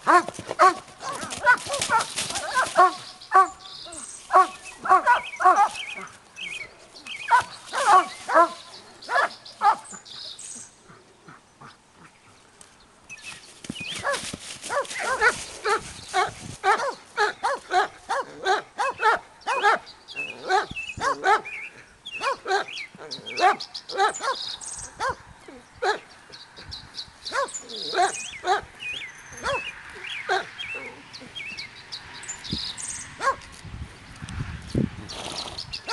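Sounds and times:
dog barking: 0.1 - 3.6, 4.3 - 5.8, 7.3 - 9.8, 14.0 - 19.8, 20.5 - 21.5, 22.2 - 22.7, 23.4 - 24.4, 25.0 - 25.2, 27.3 - 28.7, 29.4 - 29.7, 33.2 - 33.4.

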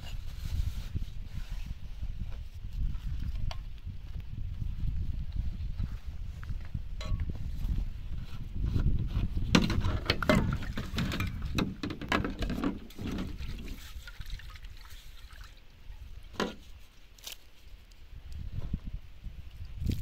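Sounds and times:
water sloshing in a metal pan: 9.7 - 16.7.

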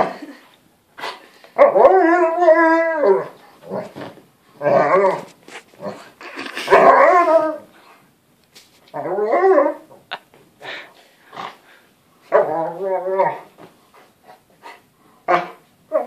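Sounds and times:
dog howling: 1.6 - 3.8, 4.6 - 5.3, 6.7 - 7.8, 9.0 - 9.9, 12.3 - 13.5.

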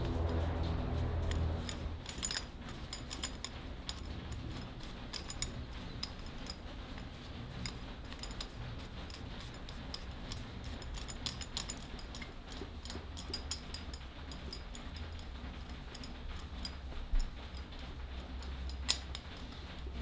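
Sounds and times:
cloth rubbing wooden handle: 0.0 - 2.2
low steady hum: 0.0 - 20.0.

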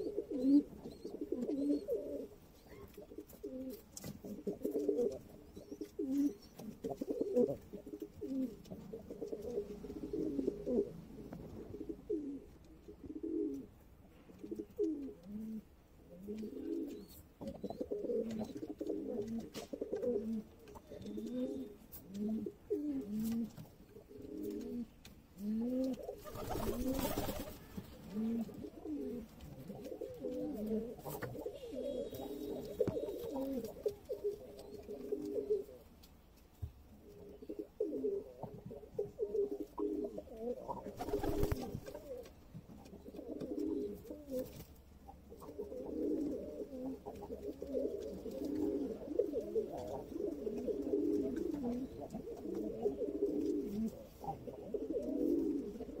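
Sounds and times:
pigeons cooing: 0.0 - 13.8, 14.4 - 35.9, 37.0 - 56.0.

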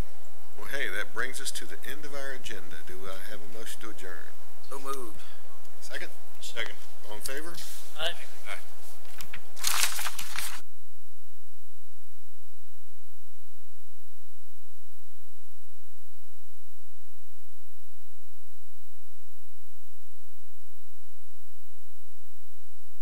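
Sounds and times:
electrical hum and hiss: 0.0 - 23.0
person speaking: 0.6 - 8.7.

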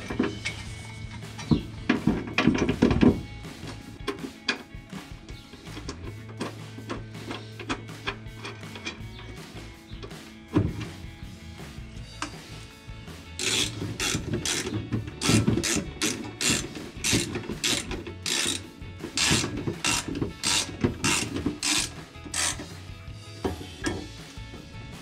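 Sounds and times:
socket ratchet clicking: 13.4 - 18.6, 19.2 - 22.7.

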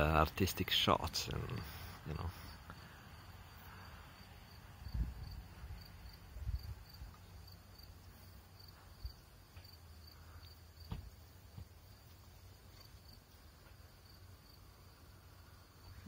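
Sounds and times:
crickets chirping: 0.0 - 16.0
thumps on microphone: 10.9 - 11.7.

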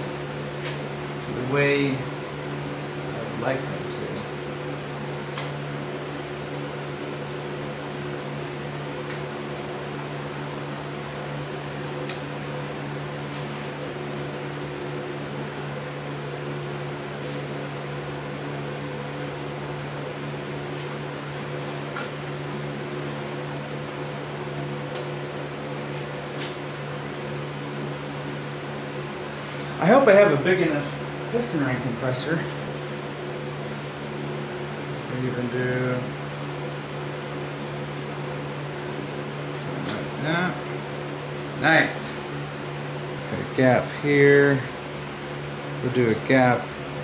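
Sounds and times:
steady machine hum: 0.0 - 47.0.

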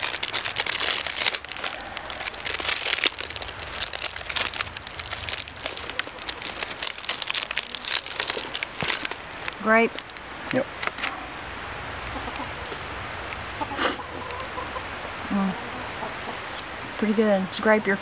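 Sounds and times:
plastic wrappers crinkling: 0.0 - 10.2.

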